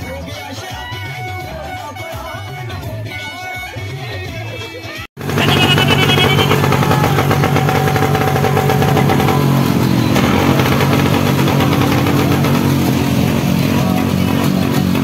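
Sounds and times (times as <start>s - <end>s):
motorcycle engines pulsing: 5.2s - 15.0s.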